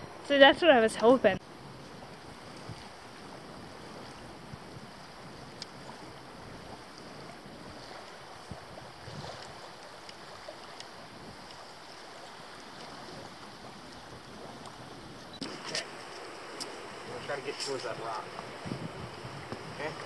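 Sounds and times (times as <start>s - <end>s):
rainforest ambience hiss: 15.3s - 20.0s.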